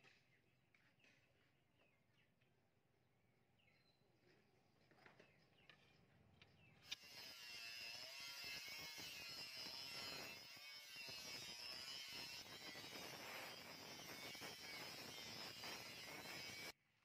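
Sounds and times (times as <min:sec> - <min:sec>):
angle grinder grinding metal: 0:06.8 - 0:16.8.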